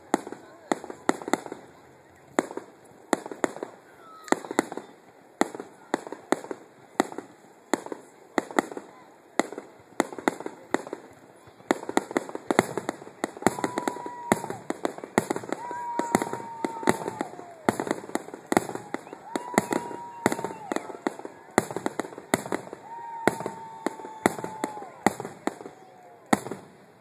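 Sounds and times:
fireworks bursting with sharp bangs: 0.0 - 27.0
firework whistle: 13.5 - 14.6, 15.5 - 21.0, 22.8 - 26.6.

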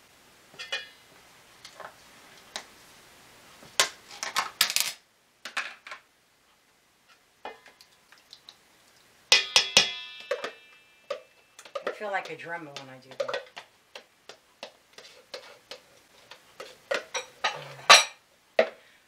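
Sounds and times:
metal spoon clinking in bowl: 9.3 - 12.0.

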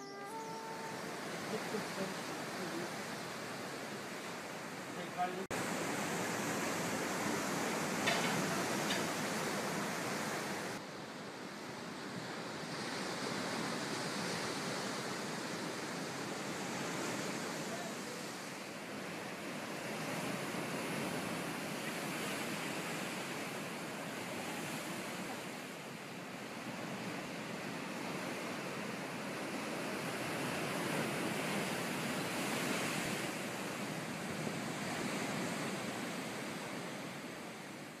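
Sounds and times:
surf crashing over rocks: 0.0 - 10.8, 12.1 - 38.0
surf breaking over rocks: 0.6 - 10.8.

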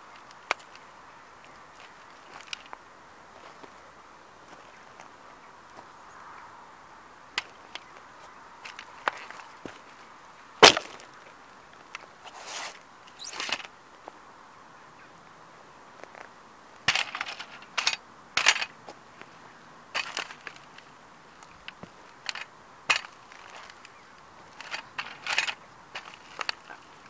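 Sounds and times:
crunching on gravel: 0.0 - 6.0, 7.3 - 14.2, 16.0 - 27.0
metal toy car cracking underfoot: 10.6 - 11.1, 13.2 - 13.7, 16.8 - 18.7, 20.0 - 26.8.

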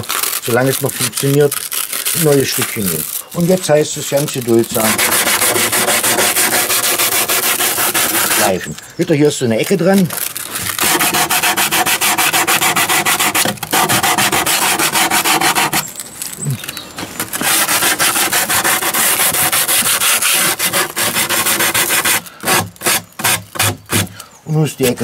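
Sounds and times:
sandpaper rubbing on plywood: 2.2 - 8.7, 10.7 - 15.9, 17.4 - 24.1.

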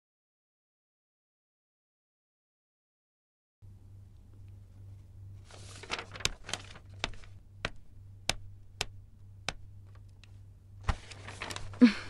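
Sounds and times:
steady low hum: 3.6 - 12.0.

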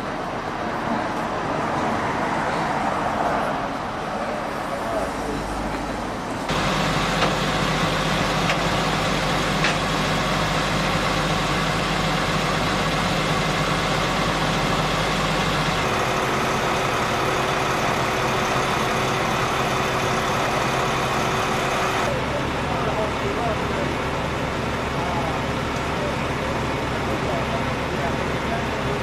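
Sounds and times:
truck engine idling: 6.4 - 29.0.

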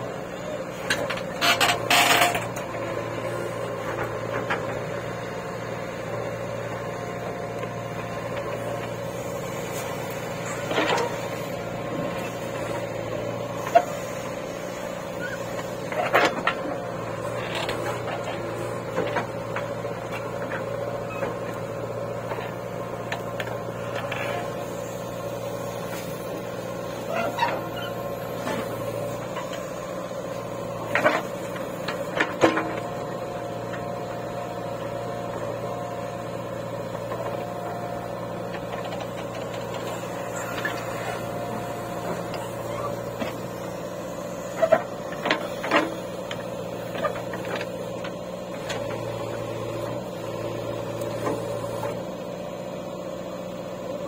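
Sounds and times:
backhoe digging: 0.0 - 54.0
diesel engine running: 0.0 - 54.0.

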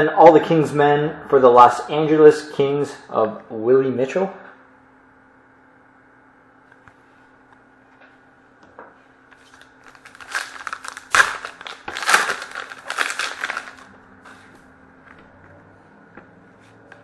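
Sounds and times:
plastic wrapper crinkling: 9.4 - 13.9.

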